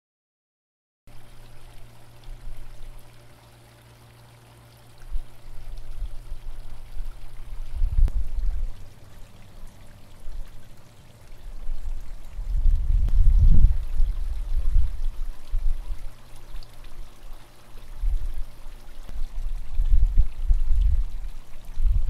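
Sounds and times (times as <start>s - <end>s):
faint low hum: 1.1s - 22.0s
wind buffeting microphone: 5.1s - 9.0s, 11.4s - 16.1s, 17.8s - 22.0s.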